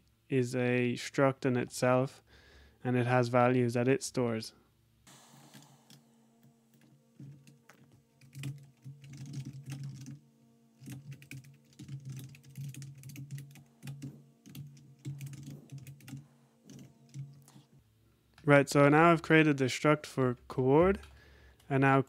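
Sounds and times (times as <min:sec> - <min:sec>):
typing on a keyboard: 0:07.2 - 0:10.2, 0:10.8 - 0:17.4.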